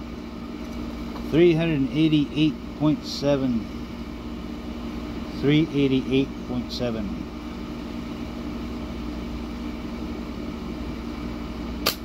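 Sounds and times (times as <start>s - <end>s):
slingshot snap: 11.8s - 12.0s.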